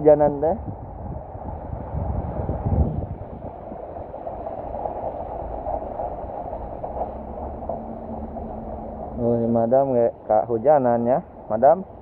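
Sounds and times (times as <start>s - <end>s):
rain falling on wet street: 3.8s - 9.3s.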